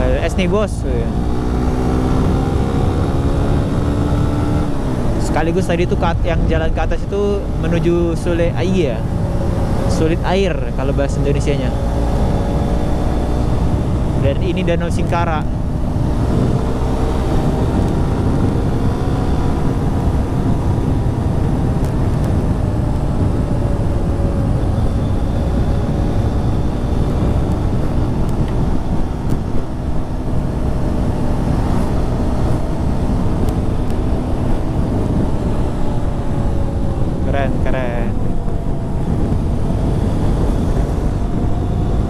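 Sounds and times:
motorcycle engine cruising: 0:00.0 - 0:42.0
wind and road noise: 0:00.0 - 0:42.0.

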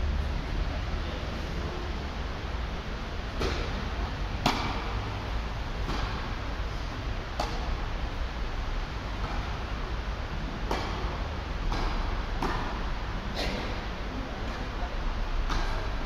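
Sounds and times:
background noise rush: 0:00.0 - 0:16.0
tennis balls struck by rackets: 0:03.2 - 0:13.8, 0:15.4 - 0:16.0.

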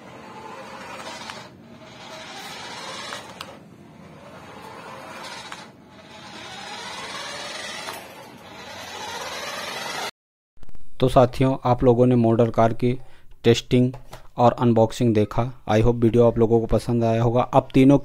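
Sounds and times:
toy car motor whirring: 0:00.0 - 0:10.1.

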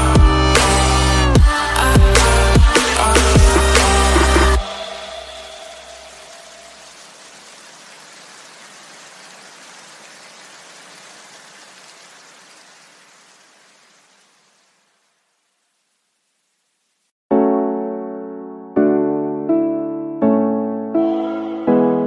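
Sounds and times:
steady hiss: 0:03.8 - 0:17.1.

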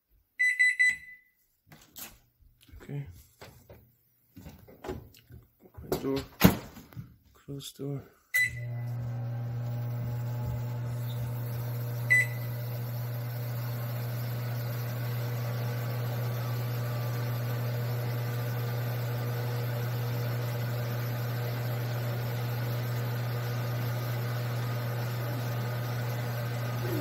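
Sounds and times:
microwave oven beeping: 0:00.4 - 0:01.3, 0:08.4 - 0:27.0
microwave oven humming: 0:08.4 - 0:27.0.

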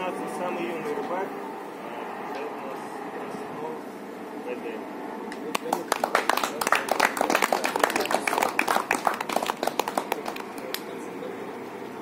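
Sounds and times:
people clapping: 0:05.3 - 0:11.1.

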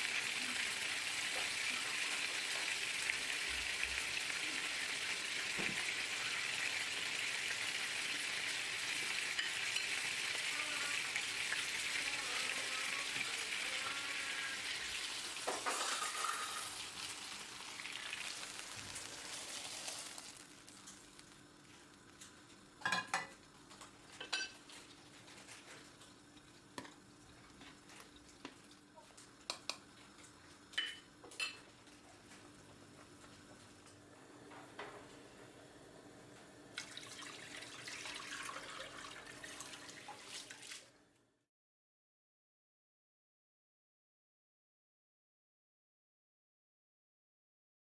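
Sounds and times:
chicken sizzling in oil: 0:00.0 - 0:31.7, 0:35.2 - 0:41.0.

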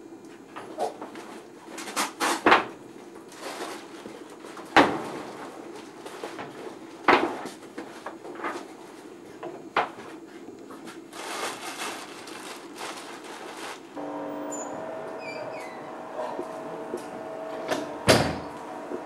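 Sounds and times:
room ambience hum: 0:00.0 - 0:19.0
clothes rustling: 0:10.2 - 0:14.0.

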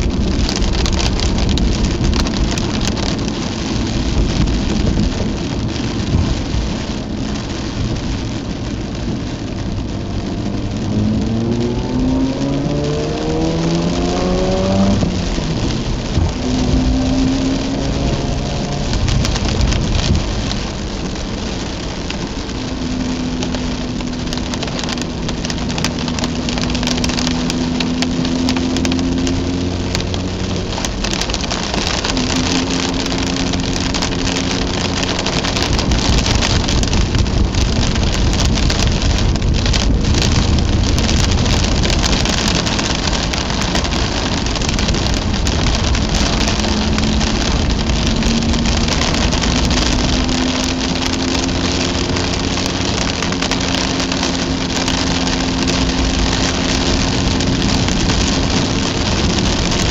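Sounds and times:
heavy rain hitting car: 0:00.0 - 0:59.9.

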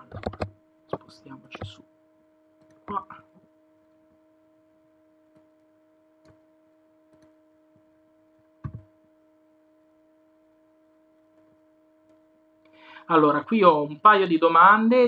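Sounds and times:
computer mouse clicks: 0:00.0 - 0:01.8, 0:07.1 - 0:07.4
low electrical hum: 0:00.0 - 0:15.0.

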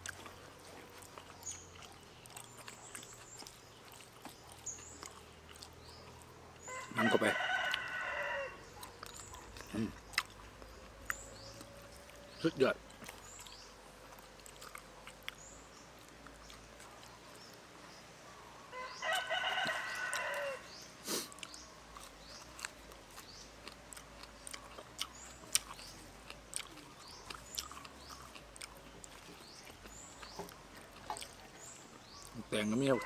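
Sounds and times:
chewing fresh leaves: 0:00.0 - 0:33.0
rooster crowing: 0:06.7 - 0:08.7, 0:18.7 - 0:20.8, 0:32.7 - 0:33.0.

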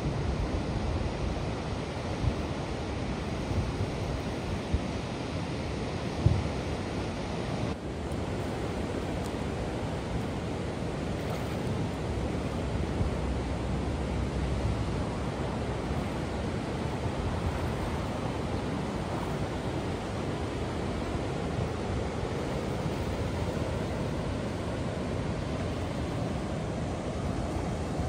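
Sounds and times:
floodwater rushing over weir: 0:00.0 - 0:28.0
low thump: 0:06.2 - 0:06.5.

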